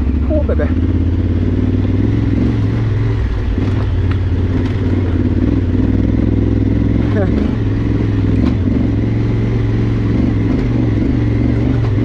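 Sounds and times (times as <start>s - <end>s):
motorcycle engine at low revs: 0.0s - 12.0s.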